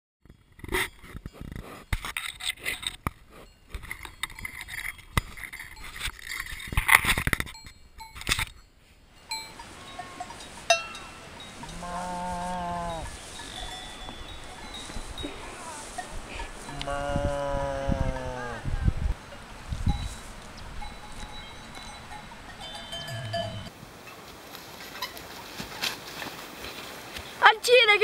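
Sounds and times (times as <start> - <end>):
cowbell ringing: 7.4 - 17.1, 19.2 - 23.7
cow mooing: 11.6 - 13.1, 16.7 - 18.9, 22.9 - 23.7.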